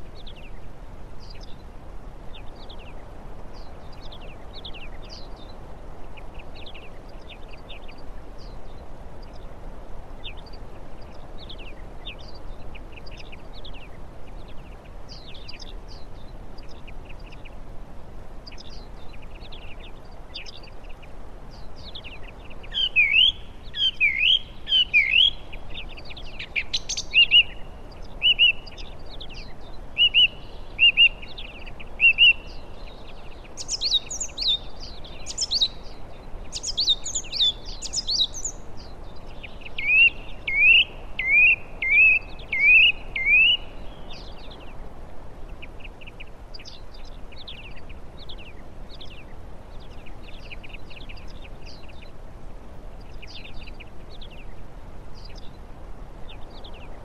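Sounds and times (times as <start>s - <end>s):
soft steady background hiss: 0.0s - 57.0s
songbirds singing and calling: 0.0s - 57.0s.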